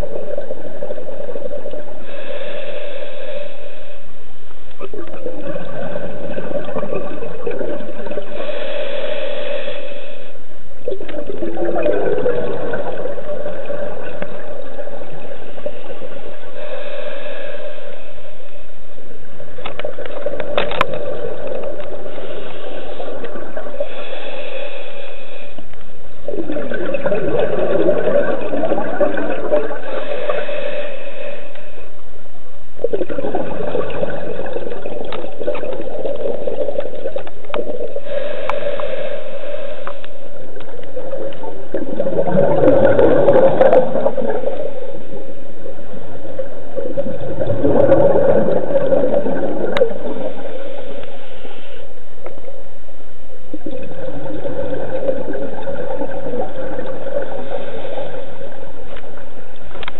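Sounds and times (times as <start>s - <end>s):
faint hiss: 0.0s - 59.9s
underwater exhaust bubbles: 0.0s - 59.9s.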